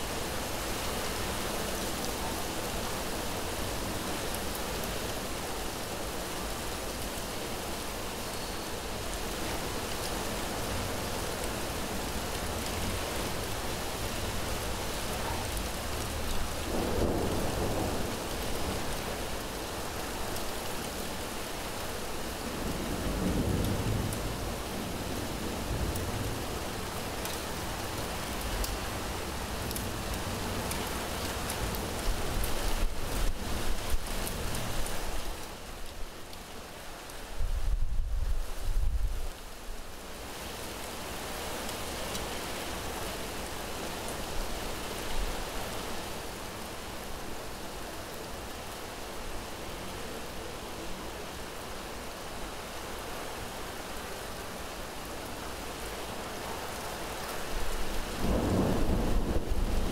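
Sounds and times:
heavy rain falling: 0.0s - 59.9s
low thunder rumbles: 58.2s - 59.9s.

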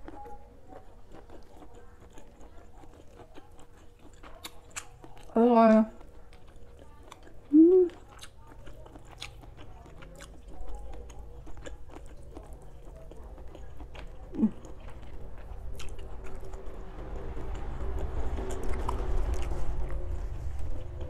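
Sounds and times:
close-up chewing: 0.0s - 21.0s
person humming mm: 7.5s - 8.0s.

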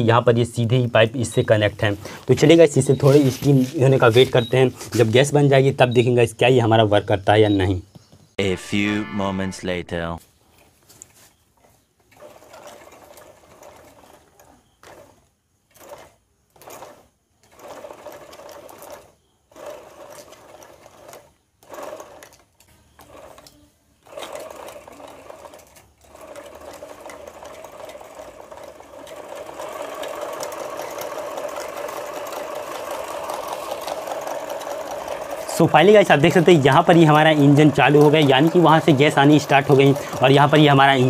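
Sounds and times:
steam engine mechanical chatter: 23.0s - 41.0s.

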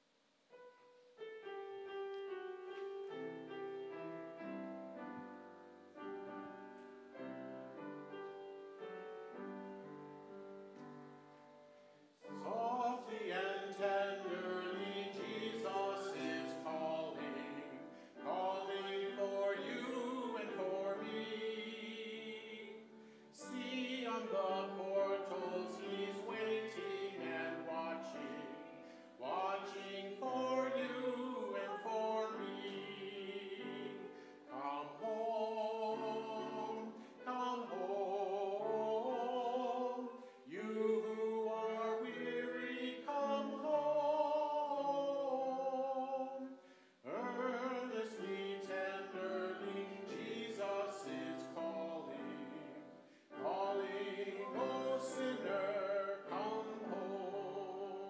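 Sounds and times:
piano playing: 0.5s - 46.3s, 47.0s - 58.0s
congregation singing a hymn: 12.2s - 58.0s.

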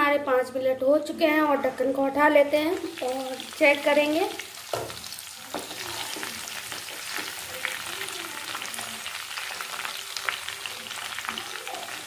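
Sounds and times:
taro sizzling in hot oil: 1.6s - 12.0s
spatula scraping and tapping pan: 4.7s - 7.4s.

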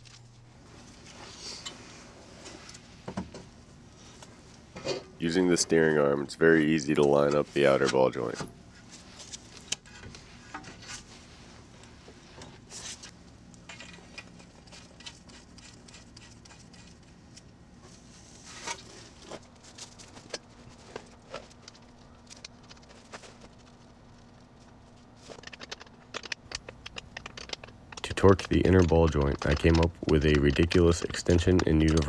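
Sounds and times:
faint steady hum: 0.0s - 32.0s
metal parts clicking and tapping: 25.2s - 32.0s.

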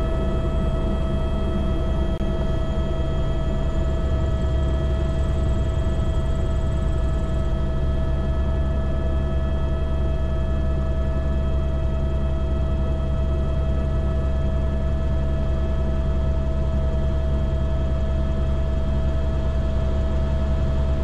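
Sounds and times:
rotor drone: 0.0s - 10.6s
helicopter turbine whine: 0.0s - 21.0s.

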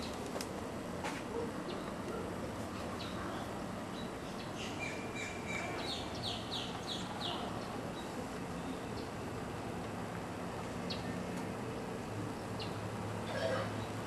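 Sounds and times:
steady background hiss: 0.0s - 14.0s
birds chirping: 1.3s - 9.8s, 10.8s - 14.0s.

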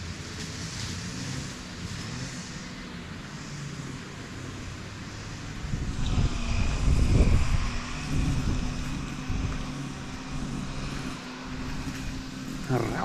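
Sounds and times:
engine droning: 0.0s - 13.0s
low rumble: 5.5s - 12.9s.

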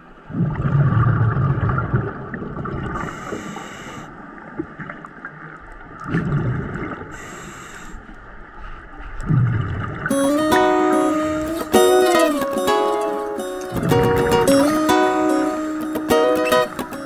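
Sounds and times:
exhaled bubbles gushing: 0.2s - 3.2s, 5.9s - 7.2s, 9.2s - 10.2s
regulator inhalation hiss: 3.0s - 4.1s, 7.2s - 8.1s.

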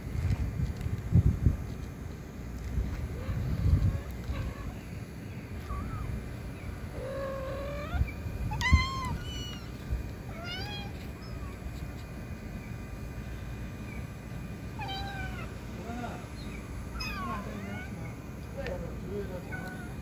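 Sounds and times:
kittens mewing: 3.1s - 5.0s, 5.6s - 12.1s, 14.7s - 20.0s.

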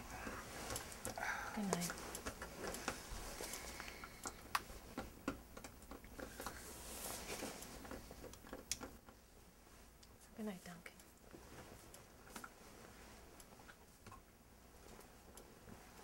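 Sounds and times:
bedclothes rustling: 0.0s - 5.2s, 6.1s - 16.0s
small clicks and taps: 0.6s - 6.6s, 7.8s - 9.2s.

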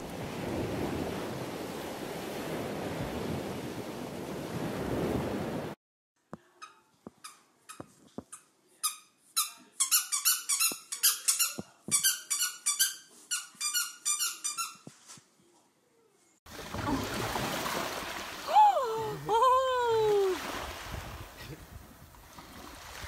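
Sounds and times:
surf at a shoreline: 0.0s - 5.8s, 16.5s - 23.0s
wind: 0.0s - 5.8s, 16.4s - 23.0s
squeaky dog toy squeaking: 6.6s - 14.9s.

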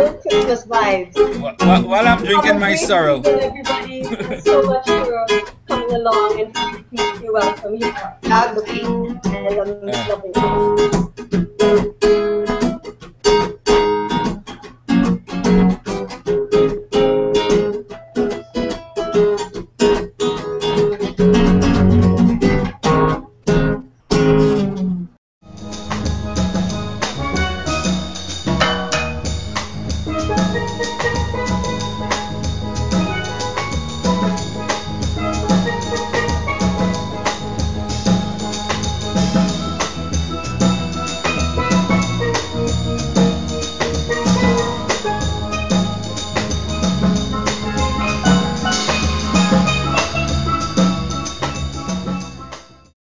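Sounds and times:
steelpan melody: 0.0s - 10.9s, 25.5s - 52.9s
drum kit beat: 0.0s - 24.4s, 25.5s - 52.9s.

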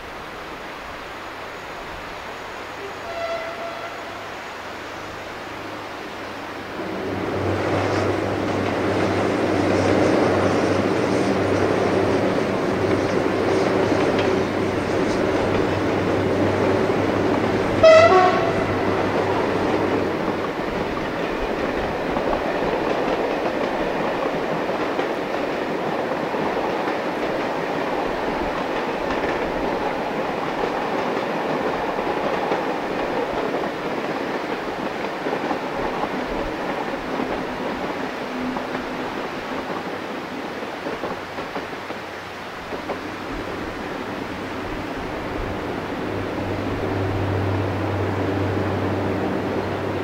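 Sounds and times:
diesel locomotive engine drone: 0.0s - 50.0s
train coaches rumbling on track: 0.0s - 50.0s
train horn blast: 2.8s - 4.4s, 17.6s - 19.8s, 46.4s - 49.9s.

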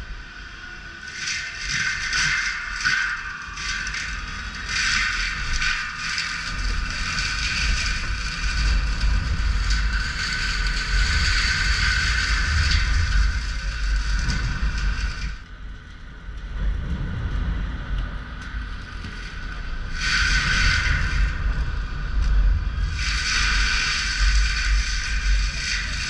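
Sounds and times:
high whine: 0.0s - 26.0s
diesel engine deep rumble: 6.7s - 25.9s.

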